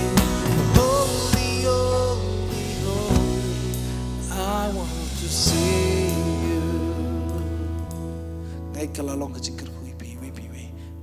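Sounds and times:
man singing into microphone: 0:00.0 - 0:07.9
worship band playing: 0:00.0 - 0:10.6.

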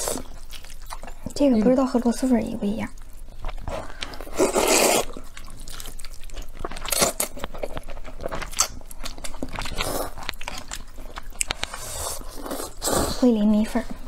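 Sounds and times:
chewing and wet smacking: 0:00.0 - 0:13.0
noodles slurped: 0:03.6 - 0:13.3.

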